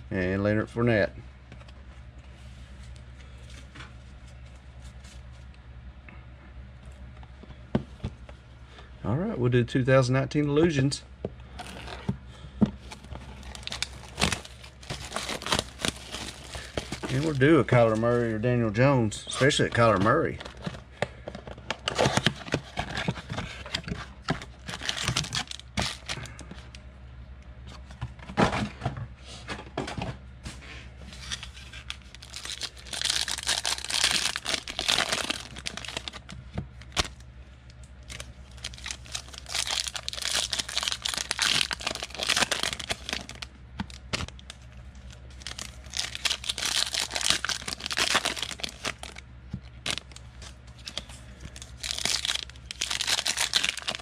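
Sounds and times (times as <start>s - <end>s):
wrappers tearing and crinkling: 12.9s - 18.4s, 24.4s - 26.4s, 31.1s - 37.2s, 38.0s - 54.0s.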